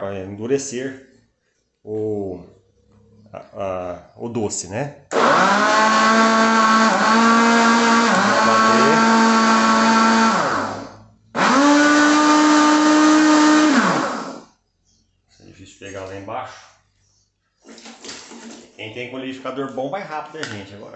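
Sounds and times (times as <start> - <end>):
blender motor running: 5.1 - 14.5.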